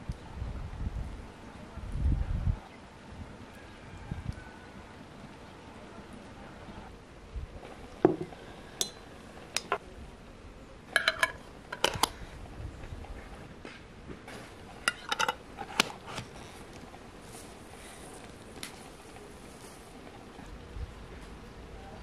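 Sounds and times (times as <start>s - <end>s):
metal spoon clinking against glass: 11.0s - 12.0s, 14.9s - 15.4s
screw lids clicking on glass jars: 11.0s - 12.2s, 14.9s - 16.0s.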